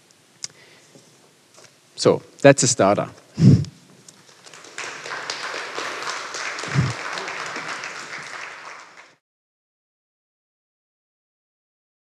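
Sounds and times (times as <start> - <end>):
audience applauding: 4.2 - 9.2.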